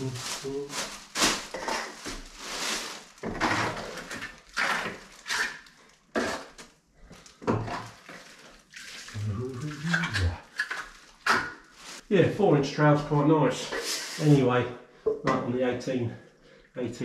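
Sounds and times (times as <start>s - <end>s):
trowel scraping plaster on wall: 1.5s - 2.2s, 3.2s - 6.6s.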